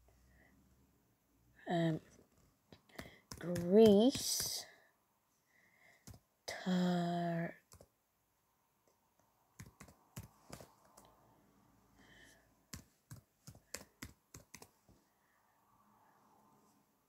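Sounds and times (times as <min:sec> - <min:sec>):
faint keyboard typing: 0:02.1 - 0:04.7, 0:06.0 - 0:06.3, 0:07.6 - 0:07.9, 0:08.9 - 0:11.2, 0:12.7 - 0:14.9.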